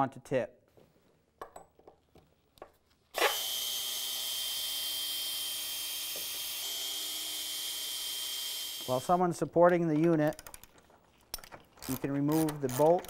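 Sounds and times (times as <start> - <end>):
power drill motor whining: 3.2 - 9.2.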